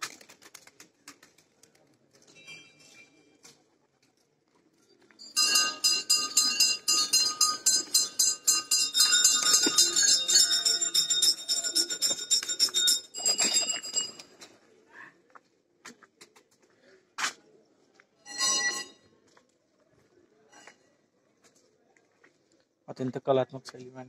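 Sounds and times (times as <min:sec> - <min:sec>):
metal bells ringing rapidly: 0:05.2 - 0:14.4, 0:18.3 - 0:18.9.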